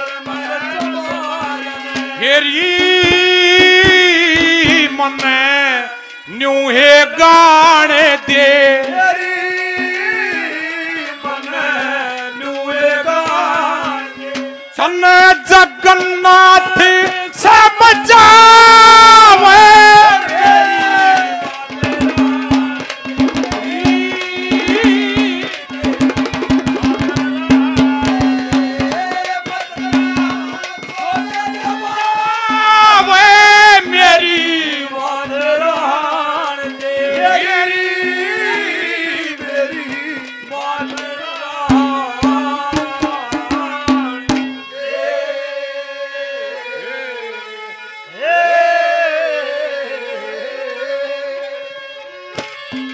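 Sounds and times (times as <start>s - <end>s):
hand drum strokes: 20.2s - 33.1s, 39.4s - 44.7s.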